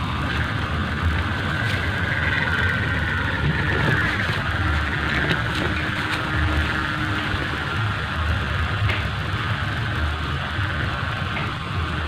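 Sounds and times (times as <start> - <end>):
kite hummer droning: 0.0 - 12.0
wind rumbling on microphone: 0.0 - 12.0.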